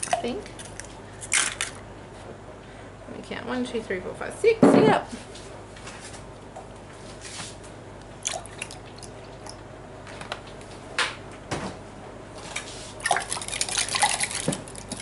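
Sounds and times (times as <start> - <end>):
milk pouring into jug: 13.0 - 15.0.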